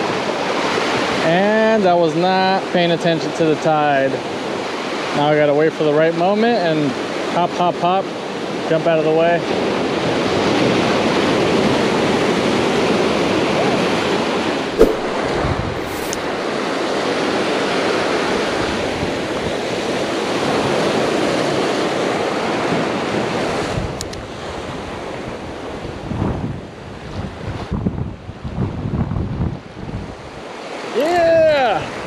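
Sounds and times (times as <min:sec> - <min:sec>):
sharp knock: 0:14.8 - 0:16.3.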